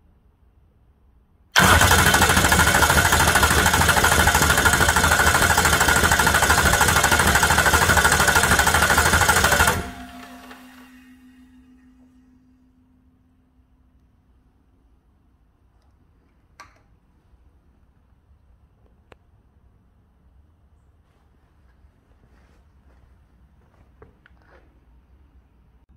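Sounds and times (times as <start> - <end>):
starter motor cranking diesel engine: 1.6 - 11.0
engine coasting to a stop: 1.6 - 11.1.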